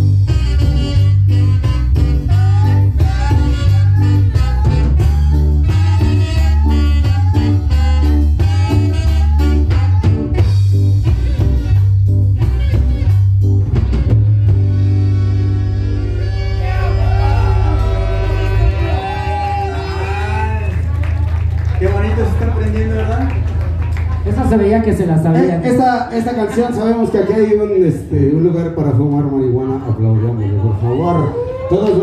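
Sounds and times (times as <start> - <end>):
live band playing: 0.0 - 29.0
person singing: 2.1 - 10.5.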